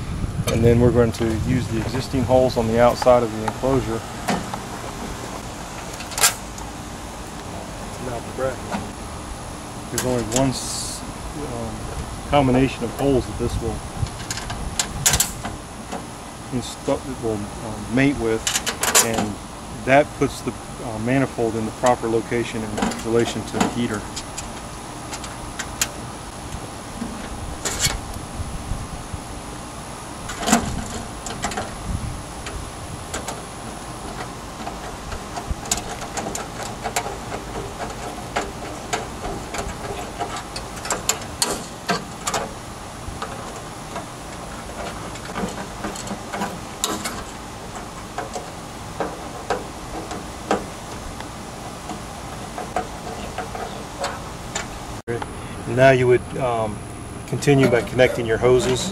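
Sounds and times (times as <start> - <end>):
steady mechanical hum: 0.0 - 58.9.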